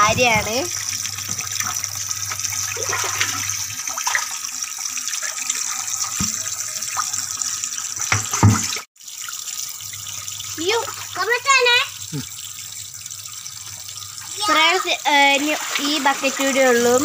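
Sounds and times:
water running and splashing: 0.0s - 17.0s
plastic bucket knocking: 8.1s - 8.7s.

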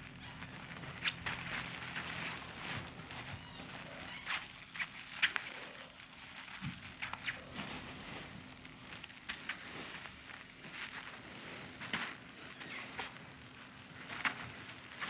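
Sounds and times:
play tunnel lining crinkling: 0.0s - 15.0s.

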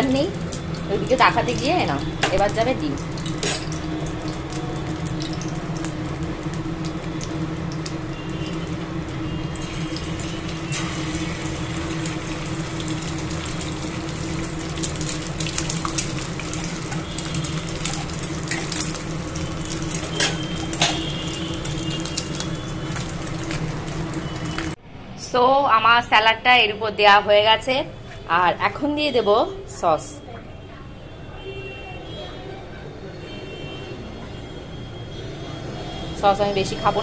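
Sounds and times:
egg sizzling in oil: 0.0s - 24.8s.

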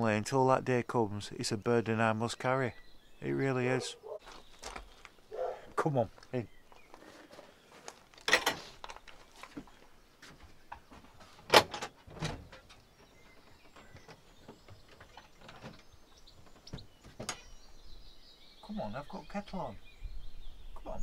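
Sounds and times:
wooden door unlatched and opened: 8.3s - 8.7s, 11.4s - 12.9s.

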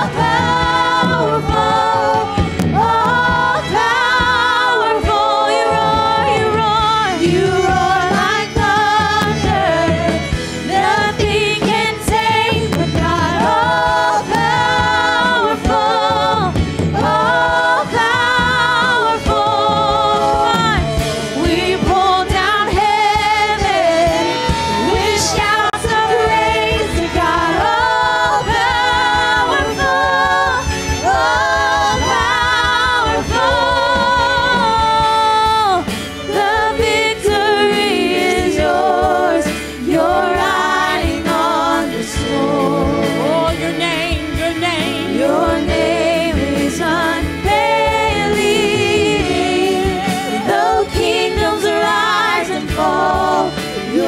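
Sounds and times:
drums: 0.0s - 54.0s
electric guitar: 0.0s - 54.0s
keyboard: 0.0s - 54.0s
woman singing with vibrato: 0.0s - 54.0s.

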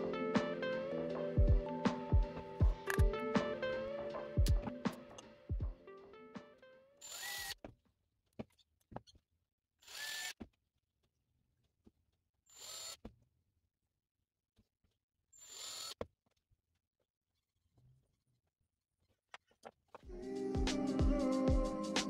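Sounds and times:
handling clicks: 2.8s - 3.2s
cordless drill bursts: 7.0s - 7.6s, 9.8s - 10.4s, 12.5s - 13.0s, 15.4s - 16.0s.

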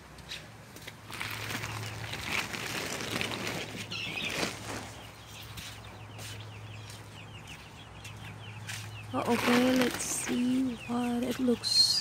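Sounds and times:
plastic tarp rustling and flapping: 1.0s - 5.2s, 9.2s - 10.5s
chicks peeping: 1.2s - 12.0s.

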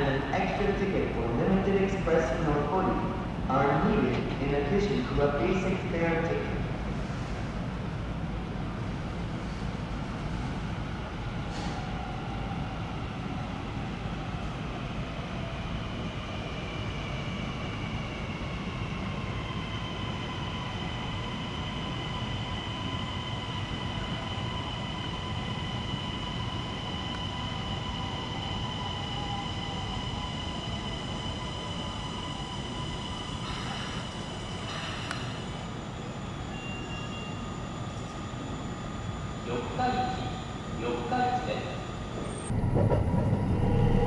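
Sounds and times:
train low rumble: 0.0s - 44.0s
train electric whine: 15.9s - 44.0s.

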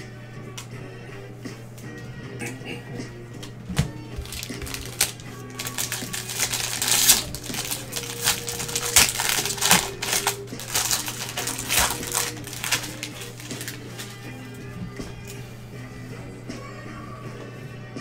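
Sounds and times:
foil wrapper crinkling and tearing: 4.2s - 14.3s.

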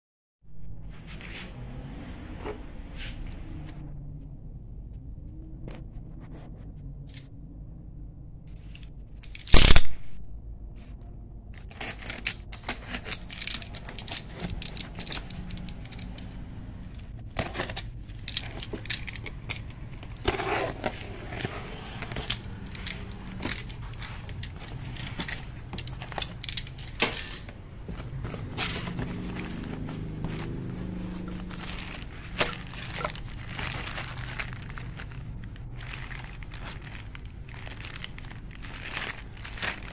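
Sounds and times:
steady low hum: 0.5s - 39.9s
cardboard scraping: 11.6s - 39.9s
plastic wrapping rustling: 11.6s - 39.9s.

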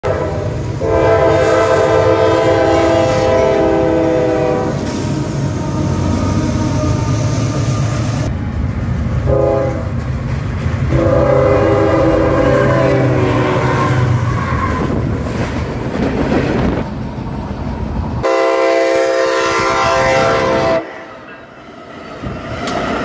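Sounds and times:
train air horn chord: 0.0s - 4.9s, 9.3s - 9.9s, 10.9s - 14.2s, 18.2s - 21.2s
train rolling past: 0.0s - 23.0s.

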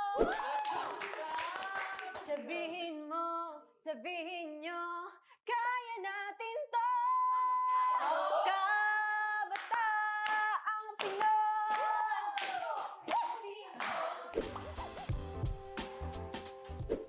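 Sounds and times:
women singing unaccompanied: 1.0s - 14.4s
hand claps: 9.5s - 14.2s.

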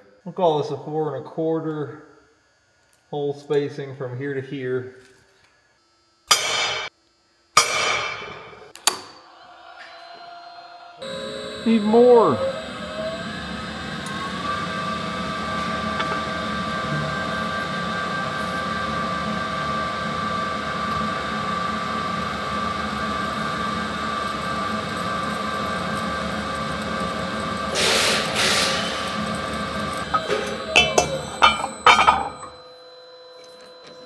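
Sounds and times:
drill press cutting steel: 11.0s - 32.6s.

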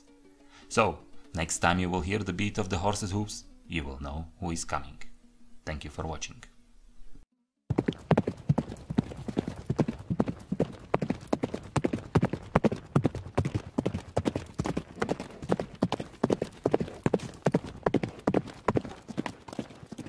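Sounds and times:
horse hoofbeats: 7.7s - 20.0s.

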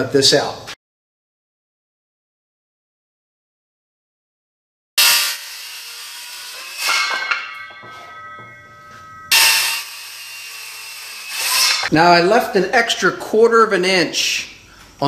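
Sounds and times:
circular saw cutting wood: 5.0s - 11.9s
thin saw whine: 5.0s - 11.9s.

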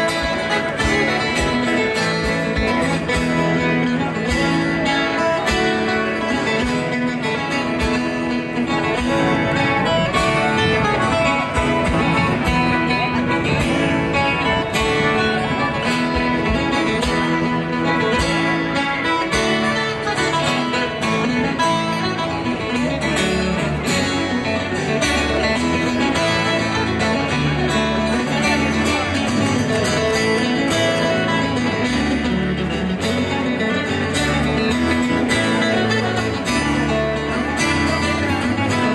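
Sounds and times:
electric bass: 0.0s - 38.9s
fiddle: 0.0s - 38.9s
folk band playing: 0.0s - 38.9s
strummed acoustic guitar: 0.0s - 38.9s.

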